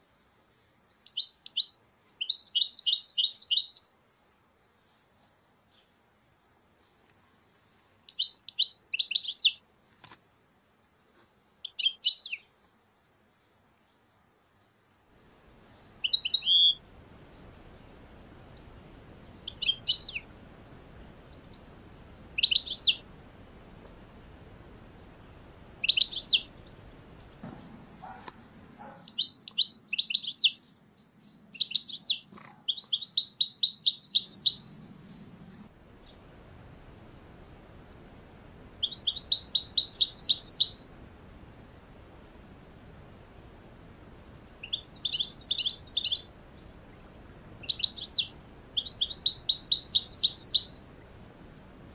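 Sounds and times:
faint steady hiss: 0.0s - 51.9s
finches twittering: 15.6s - 23.6s, 24.9s - 30.4s, 31.6s - 35.3s, 38.8s - 41.0s, 43.6s - 50.9s.

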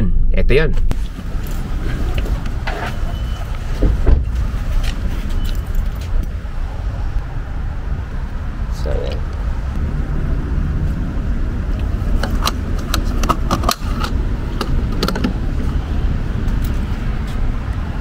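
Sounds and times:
low rumble: 0.0s - 18.0s
gas cap clicking: 11.8s - 15.4s.

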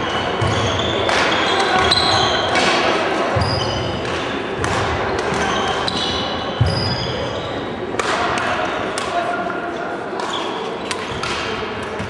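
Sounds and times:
sneakers squeaking on wooden floor: 0.0s - 2.6s, 3.4s - 4.3s, 5.3s - 7.7s
echoing indistinct voices: 0.0s - 12.0s
rackets striking shuttlecocks: 0.2s - 3.0s, 3.7s - 6.7s, 10.1s - 12.0s.

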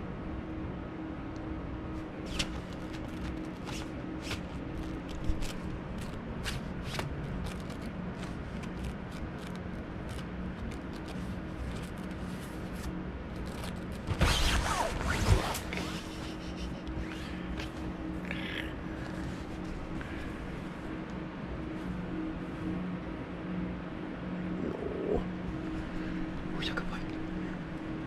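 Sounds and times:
low hum: 0.0s - 28.0s
fox rustling on fabric: 2.0s - 16.4s.

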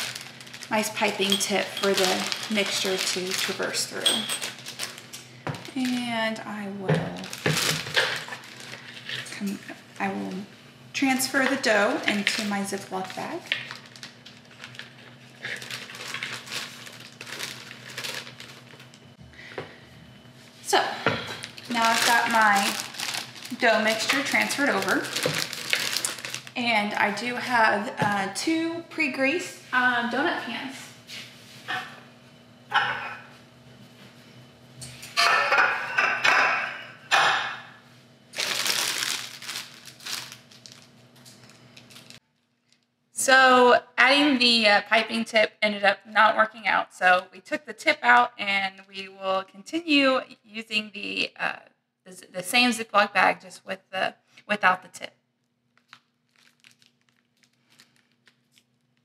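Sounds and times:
plastic bag rustling and crinkling: 0.0s - 9.5s, 11.4s - 19.1s, 21.3s - 27.2s, 38.3s - 42.9s, 55.7s - 59.0s
metal pans clattering: 35.2s - 37.6s.

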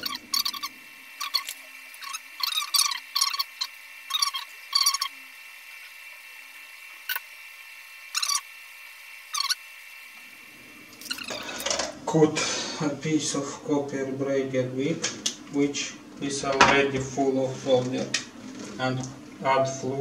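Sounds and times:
braid scratchy rubbing: 0.0s - 5.1s, 8.2s - 8.4s.

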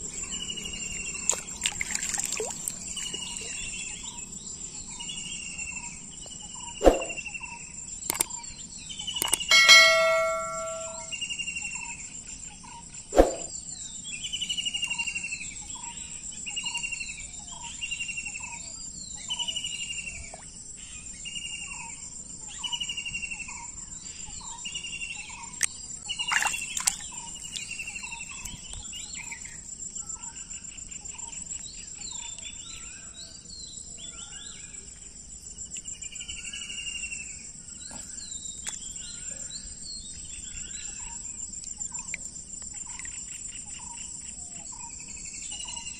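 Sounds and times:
insects buzzing: 0.0s - 10.3s, 23.6s - 45.9s
bird calling: 9.2s - 11.1s
sharp knock: 9.5s - 11.1s.

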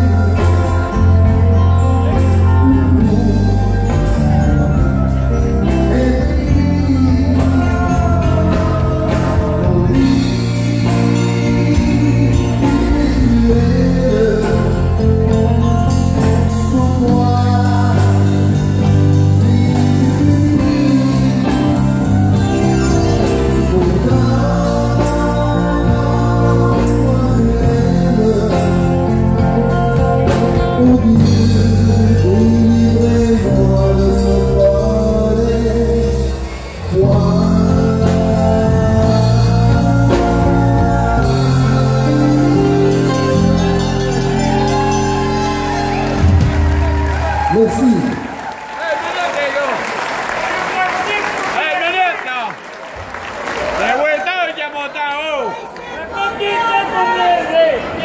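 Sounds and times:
person singing: 0.0s - 46.9s
drums: 0.0s - 48.5s
electric guitars: 0.0s - 48.6s
flute melody: 36.5s - 48.0s.

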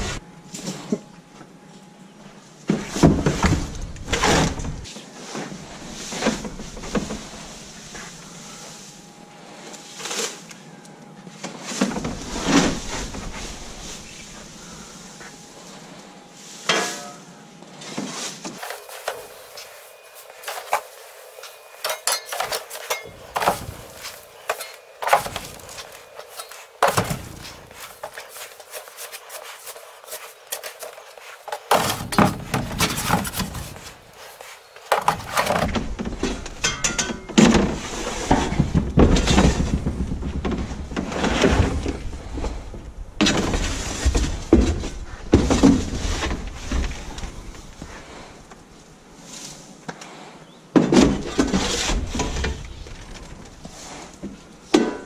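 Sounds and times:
straw rustling: 2.8s - 42.7s.

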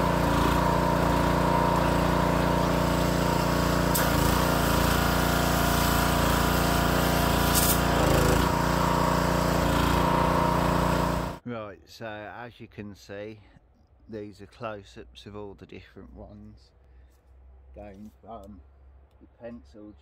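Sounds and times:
pressure washer engine running: 0.0s - 11.4s
water spraying onto path: 0.0s - 11.4s.

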